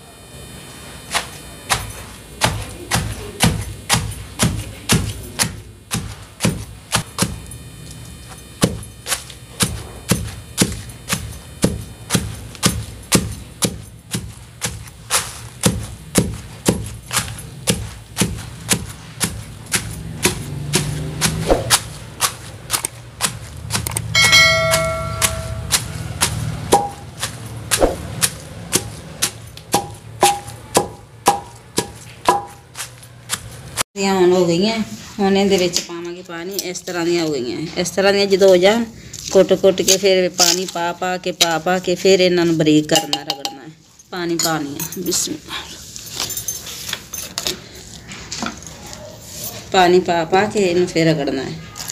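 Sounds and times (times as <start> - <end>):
pestle pounding in metal mortar: 1.2 - 7.5, 8.6 - 33.8, 42.9 - 43.6.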